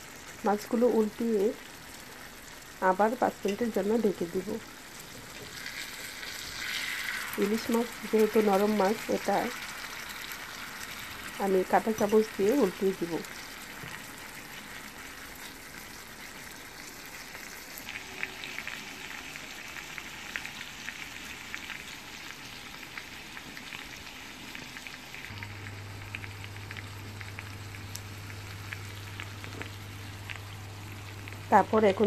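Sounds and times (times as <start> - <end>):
fish sizzling in oil: 0.0 - 32.0
low steady hum: 25.2 - 32.0.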